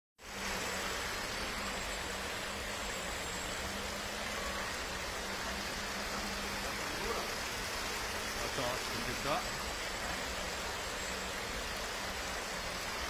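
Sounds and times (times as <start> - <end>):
swimming pool hall hiss: 0.2 - 13.0.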